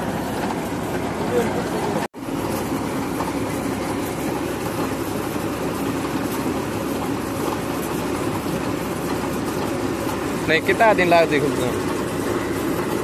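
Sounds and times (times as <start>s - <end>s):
drilling rig running: 0.0s - 13.0s.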